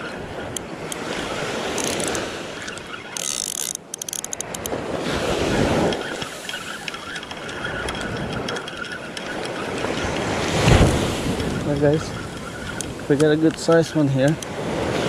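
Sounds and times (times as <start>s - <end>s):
wind on microphone: 0.0s - 15.0s
fishing reel clicking: 0.5s - 4.8s, 5.8s - 10.3s, 12.2s - 14.5s
surf breaking on sand: 9.9s - 15.0s.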